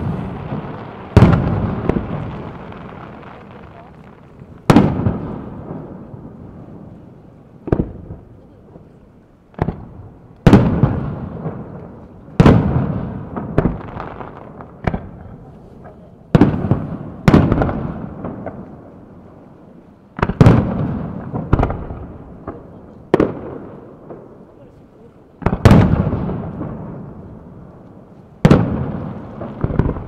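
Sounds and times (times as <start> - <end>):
firework shells bursting: 0.0 - 5.4.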